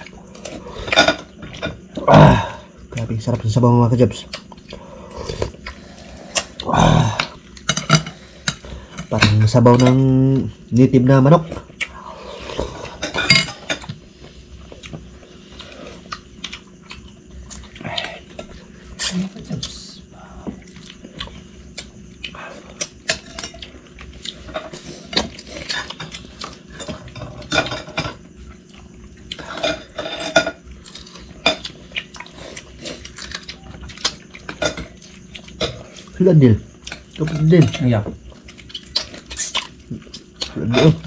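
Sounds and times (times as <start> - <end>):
cutlery clinking on plates: 29.4 - 30.6.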